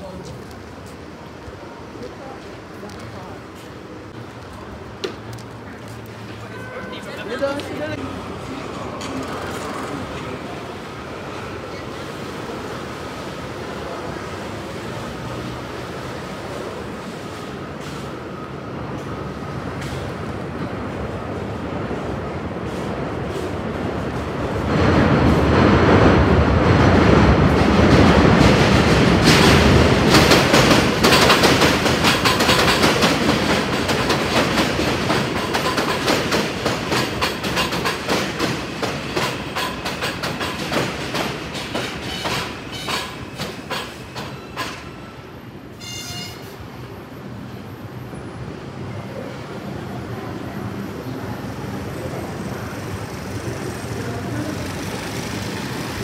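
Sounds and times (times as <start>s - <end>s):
steady background noise: 0.0s - 56.0s
train wheels clacking over rail joints: 27.5s - 45.0s.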